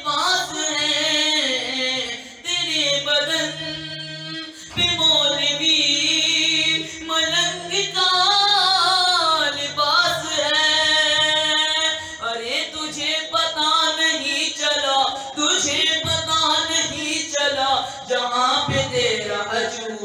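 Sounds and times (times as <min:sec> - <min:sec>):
boy singing through a microphone: 0:00.0 - 0:20.0.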